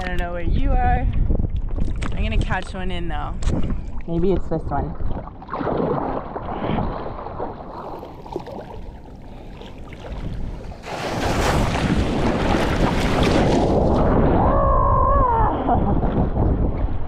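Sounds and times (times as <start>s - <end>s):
wind on microphone: 0.0s - 17.0s
ocean water splashing: 4.8s - 17.0s
rush of moving water: 5.5s - 14.9s.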